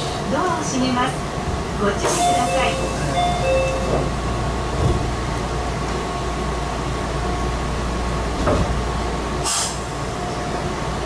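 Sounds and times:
train low hum: 0.0s - 11.0s
two-note door chime: 2.2s - 4.0s.

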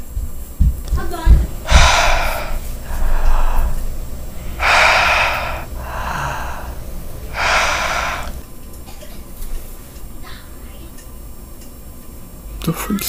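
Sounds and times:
person breathing heavily: 1.5s - 8.5s.

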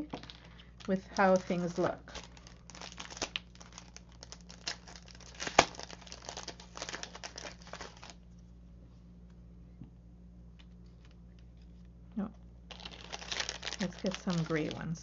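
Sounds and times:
plastic packaging crinkling: 0.0s - 8.2s, 12.7s - 15.0s.

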